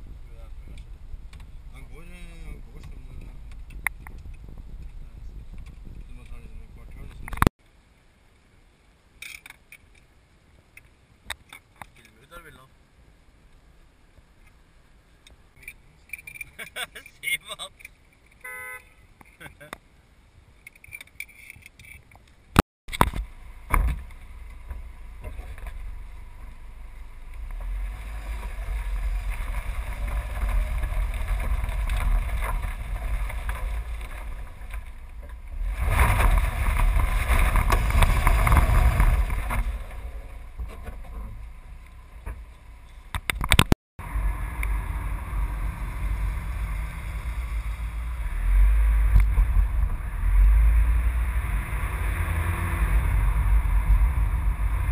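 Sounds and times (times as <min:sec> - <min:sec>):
wind rumble: 0:00.0 - 0:07.5, 0:22.9 - 0:54.9
car road noise: 0:00.0 - 0:54.9.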